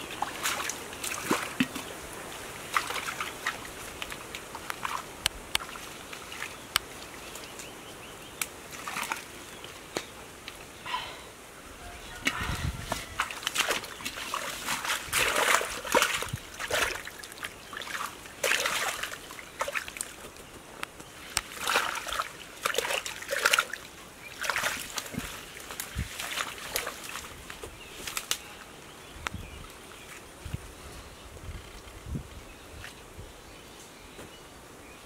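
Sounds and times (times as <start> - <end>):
hands splashing in muddy water: 0.1 - 1.9, 2.6 - 6.6, 12.2 - 20.2, 21.2 - 27.3.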